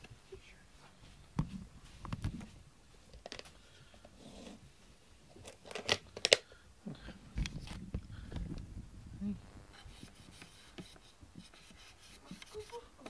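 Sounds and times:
soft rustling: 0:00.0 - 0:05.6.

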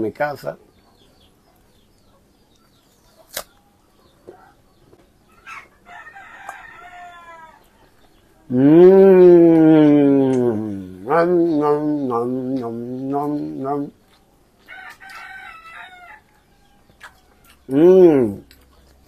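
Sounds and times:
man humming mmm while tasting: 0:08.5 - 0:14.0, 0:17.7 - 0:18.5.

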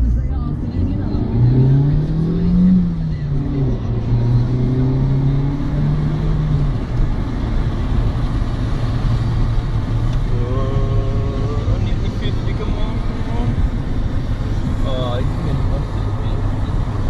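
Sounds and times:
car engine running: 0:00.0 - 0:17.0
tyre and road noise: 0:00.0 - 0:17.0.

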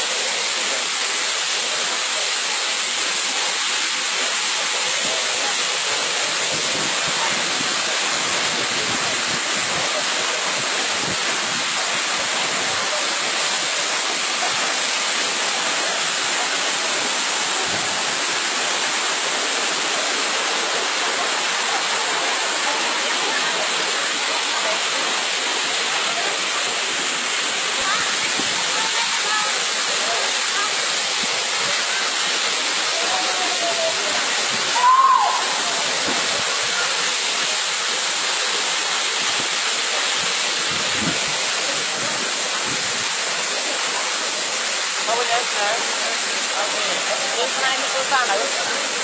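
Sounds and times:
waterfall rushing into pool: 0:00.0 - 0:49.0.

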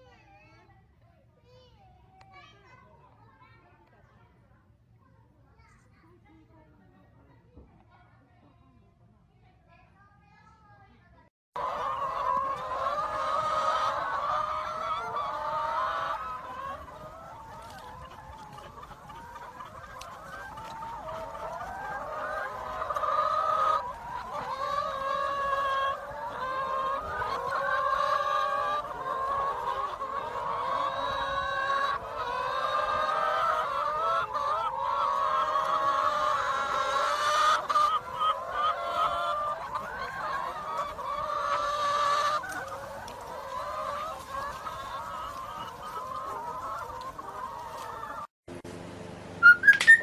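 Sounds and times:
hens clucking: 0:11.6 - 0:48.3, 0:49.4 - 0:50.0.

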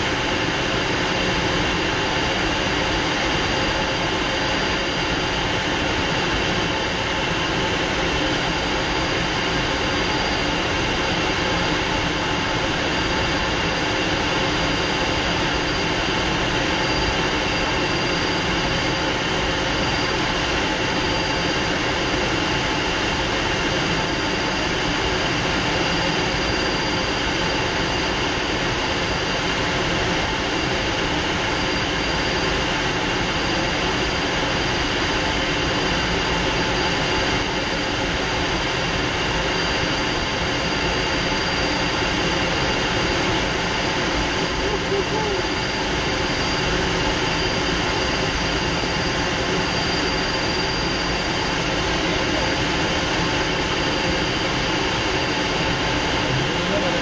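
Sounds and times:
high steady whine: 0:00.0 - 0:57.0
jet engine rush: 0:00.0 - 0:57.0.

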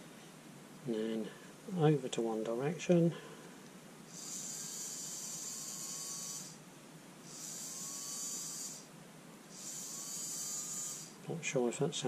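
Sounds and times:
small electric motor whirring: 0:04.1 - 0:11.3.

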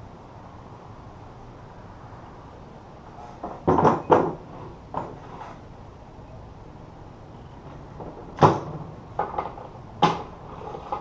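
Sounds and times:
metal parts knocking on workbench: 0:03.4 - 0:05.2.

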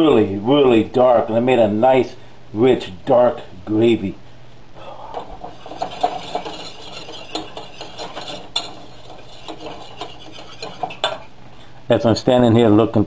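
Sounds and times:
whisk scraping a saucepan: 0:05.1 - 0:11.8.

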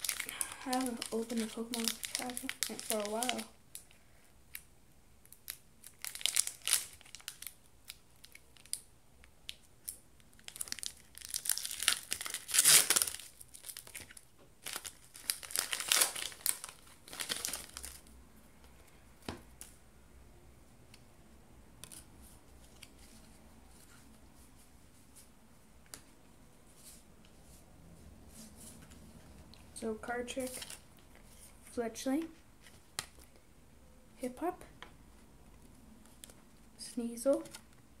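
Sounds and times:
foil wrapper crinkling and tearing: 0:00.0 - 0:03.9, 0:05.4 - 0:08.8, 0:09.8 - 0:18.1.

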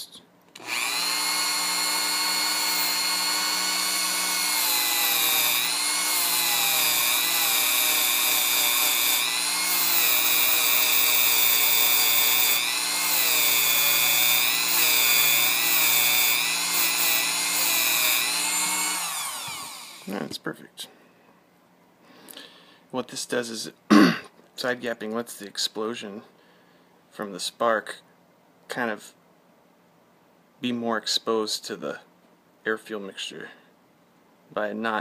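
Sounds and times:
rotary tool whining: 0:00.6 - 0:20.2.

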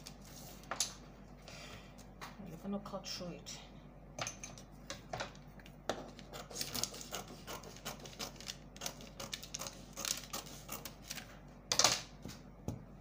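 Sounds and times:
scissors snipping paper: 0:06.2 - 0:11.3.

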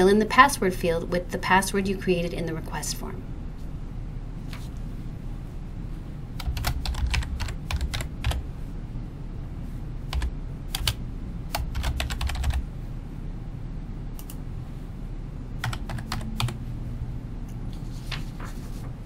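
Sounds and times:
computer keyboard typing: 0:06.4 - 0:08.4, 0:10.1 - 0:12.6, 0:14.2 - 0:14.4, 0:15.6 - 0:16.6.

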